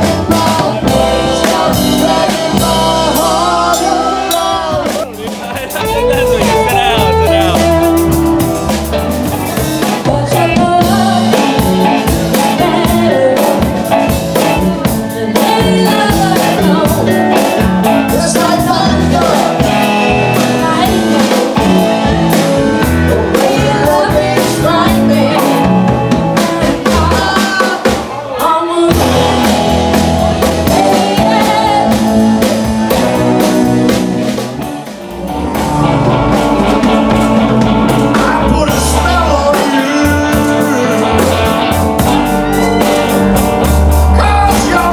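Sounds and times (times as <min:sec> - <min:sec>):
woman singing: 0:00.0 - 0:05.1, 0:09.8 - 0:33.3, 0:44.1 - 0:44.9
drums: 0:00.0 - 0:44.9
electric guitar: 0:00.0 - 0:44.9
keyboard: 0:00.0 - 0:44.9.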